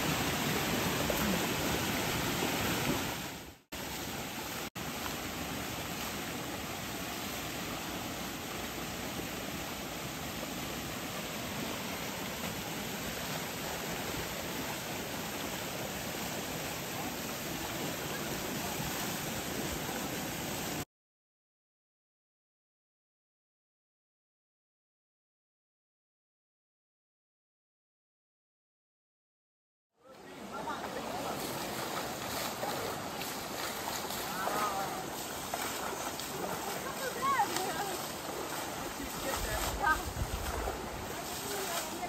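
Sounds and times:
shallow river rushing: 0:00.0 - 0:20.8, 0:30.1 - 0:42.0.

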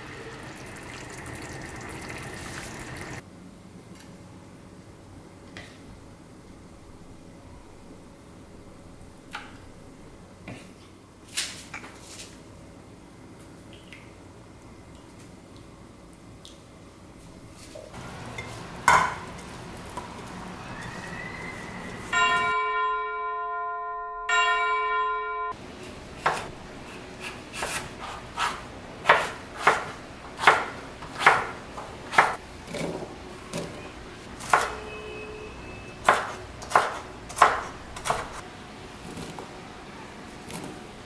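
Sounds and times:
bell-like chime dings: 0:22.2 - 0:25.6
knife chopping on wooden board: 0:26.2 - 0:26.5, 0:27.2 - 0:33.7, 0:36.0 - 0:38.4.

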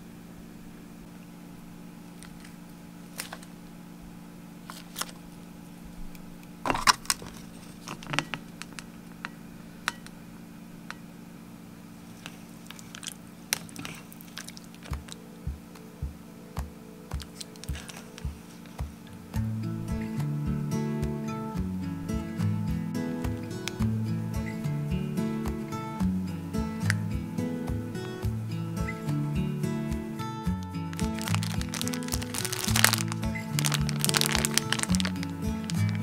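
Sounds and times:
steady low hum: 0:00.0 - 0:36.0
plastic cup and lid crackling: 0:04.7 - 0:05.2, 0:06.7 - 0:10.1, 0:12.2 - 0:15.2, 0:17.2 - 0:18.3, 0:23.4 - 0:23.8, 0:30.5 - 0:36.0.

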